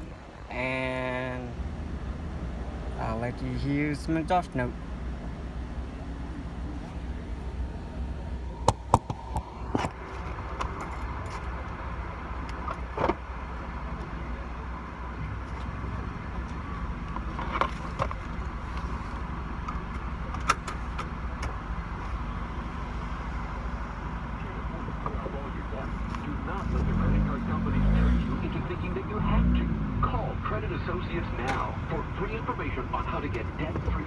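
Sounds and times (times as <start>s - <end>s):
car engine drone from cabin: 0.0s - 34.0s
sharp clicks and knocks: 8.6s - 11.5s.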